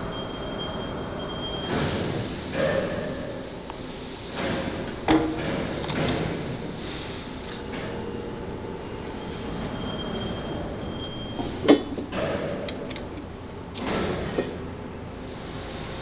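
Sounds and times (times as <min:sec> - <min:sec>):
factory rumble: 0:00.0 - 0:16.0
magnet lever clatter and knock: 0:11.9 - 0:14.5.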